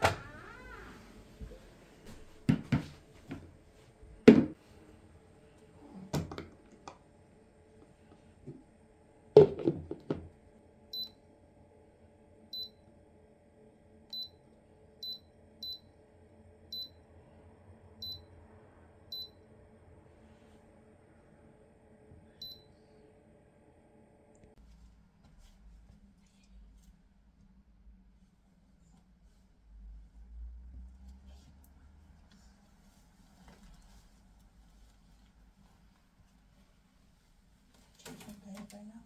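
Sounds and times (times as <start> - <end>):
objects knocking and clunking: 2.4 - 3.5, 4.2 - 4.6, 6.1 - 7.0, 9.4 - 10.4.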